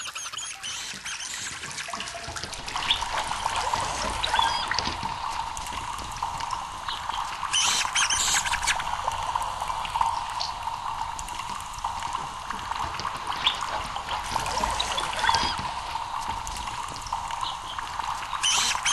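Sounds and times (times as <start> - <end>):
rats squeaking: 0.0 - 5.0, 7.5 - 8.9, 14.3 - 16.4, 17.4 - 18.9
water trickling in a pipe: 0.0 - 18.9.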